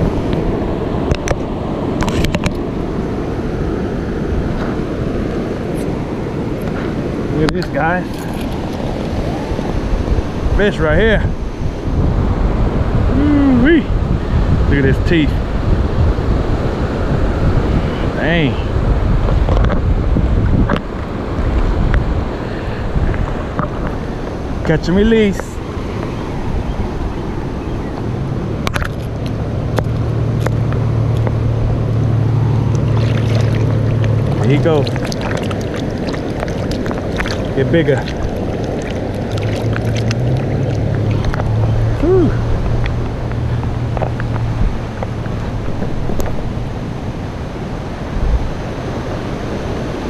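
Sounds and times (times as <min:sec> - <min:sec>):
wind buffeting microphone: 0:00.0 - 0:50.0
boat motor humming: 0:15.4 - 0:50.0.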